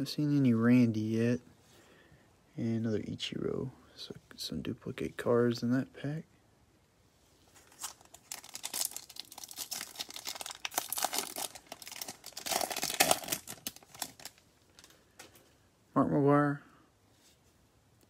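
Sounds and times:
foil wrapper crinkling and tearing: 7.6 - 15.0.

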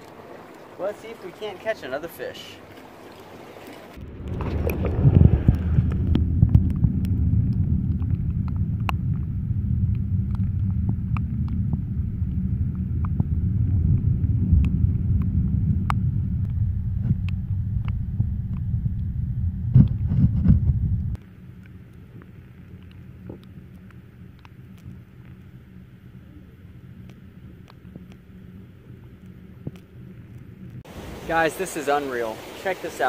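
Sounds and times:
underwater rumble of moving water: 0.0 - 33.0
sharp underwater clicks: 2.7 - 19.1, 21.1 - 30.8.

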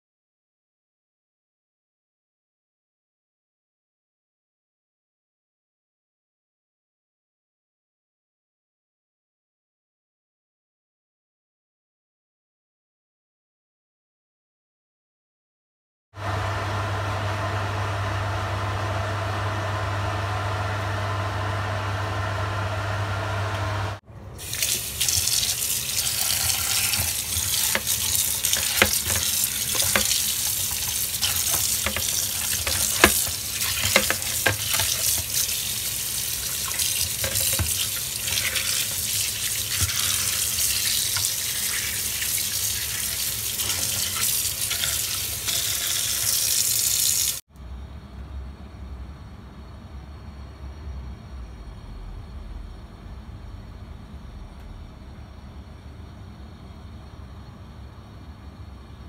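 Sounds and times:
steady machine hum: 16.2 - 42.0, 47.6 - 59.0
tap water running: 24.4 - 47.4.

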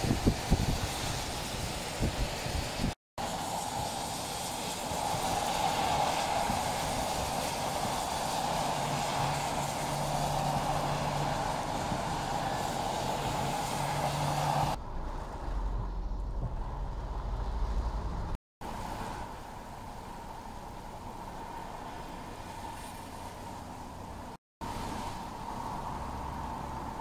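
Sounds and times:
wind noise: 0.0 - 19.3
car tyres splashing through water: 0.0 - 27.0
rain: 0.0 - 27.0
vehicle rumbling on wet road: 0.0 - 27.0.

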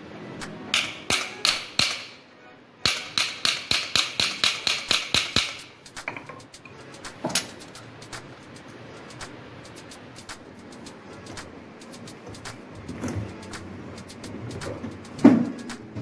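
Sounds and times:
hammer striking metal: 0.7 - 2.2, 2.8 - 7.7.

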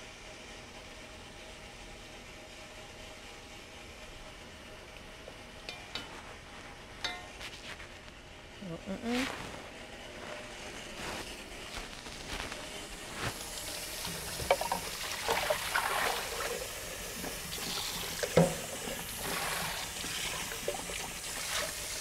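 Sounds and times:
tap water running: 12.6 - 22.0.

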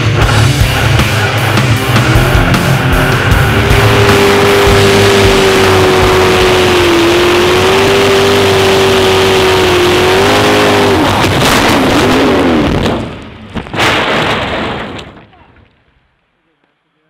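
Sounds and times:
jet boat engine running hard: 0.8 - 11.7
short loud hit: 12.8 - 15.3.

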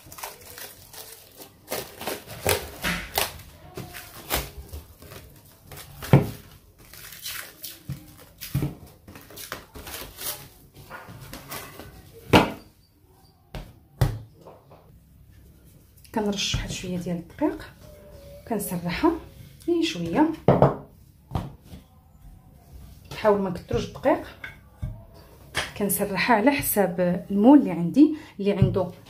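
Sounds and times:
cling film crinkling: 0.0 - 10.8.

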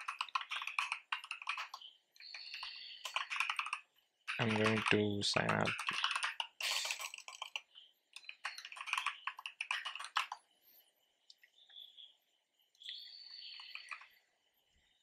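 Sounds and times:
typing on computer keyboard: 0.0 - 10.4, 13.5 - 14.1.

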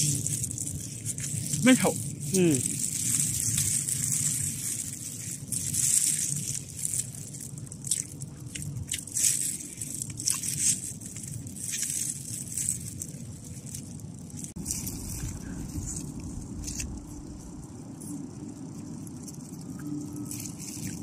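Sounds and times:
chewing and lip smacks: 0.0 - 13.9
plastic gloves crinkling: 0.0 - 21.0
steady low rumble: 0.0 - 21.0.

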